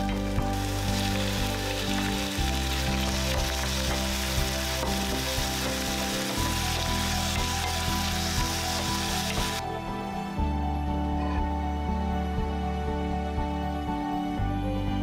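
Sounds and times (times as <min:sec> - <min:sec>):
food sizzling in frying pan: 0:00.0 - 0:09.6.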